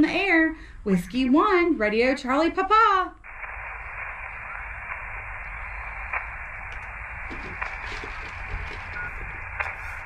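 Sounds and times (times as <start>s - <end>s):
radio static hiss: 3.2s - 10.0s
faint clicks: 3.3s - 10.0s.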